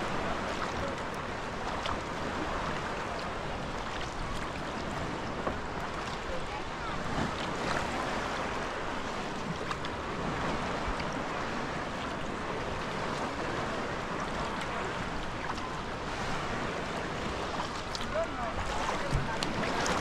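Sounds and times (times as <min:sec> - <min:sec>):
water splashing around kayak: 0:00.0 - 0:20.0
faint drips and clicks: 0:17.7 - 0:18.3.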